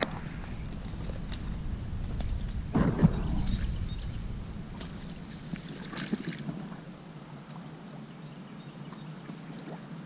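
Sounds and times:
low rumble: 0.0s - 7.1s
rustling of dry grass and twigs: 0.0s - 7.2s.

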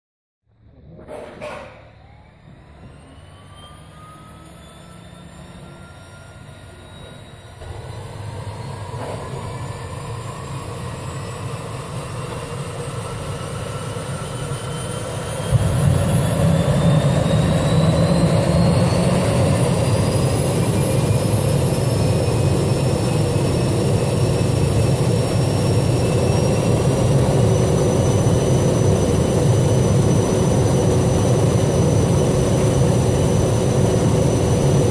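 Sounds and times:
turboprop engine spooling up: 0.5s - 34.9s
deep rumble: 15.2s - 34.9s.

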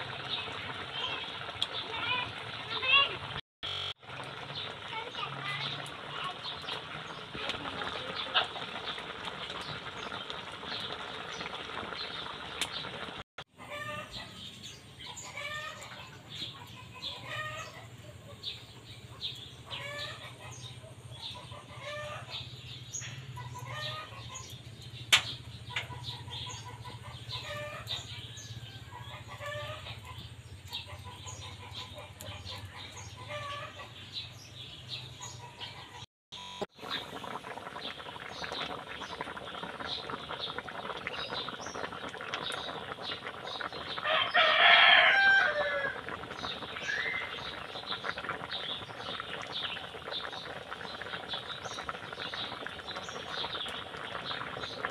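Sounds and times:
chickens clucking: 6.0s - 22.7s, 23.3s - 24.9s, 25.5s - 34.2s
food sizzling in a wok: 44.0s - 47.5s.

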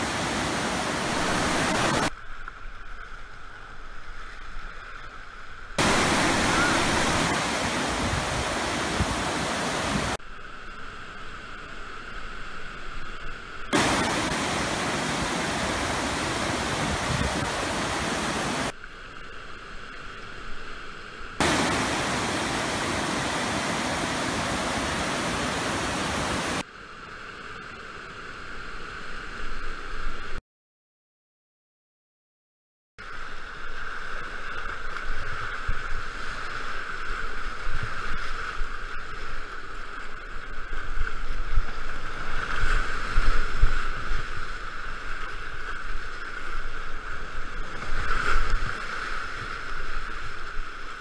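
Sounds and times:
whitewater rapids rushing: 0.0s - 2.1s, 5.8s - 10.2s, 13.8s - 18.7s, 21.4s - 26.6s.

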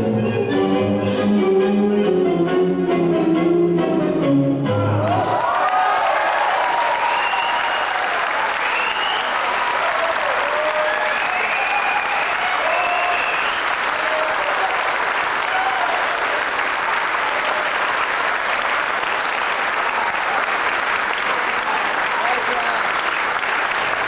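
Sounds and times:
audience applauding: 5.0s - 24.0s.

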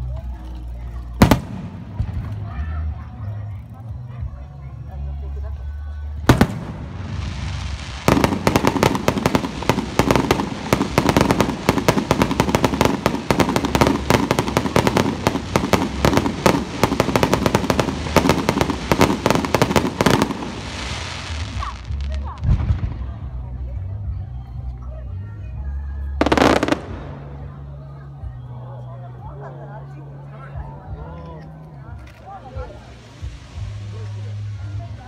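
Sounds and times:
fireworks cracking and popping: 1.1s - 2.6s, 6.2s - 23.4s, 26.2s - 27.6s.

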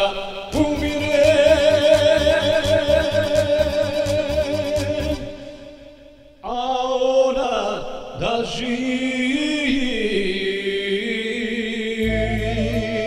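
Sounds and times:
keyboard chords with choir voice: 11.9s - 13.0s.

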